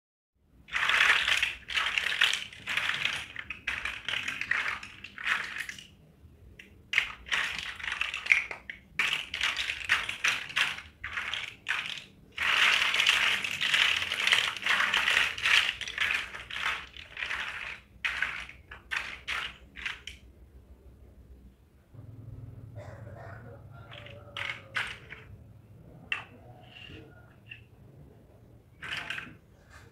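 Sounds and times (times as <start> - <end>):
plastic toy blocks clattering: 0.6 - 20.3, 23.9 - 27.7, 28.7 - 29.7.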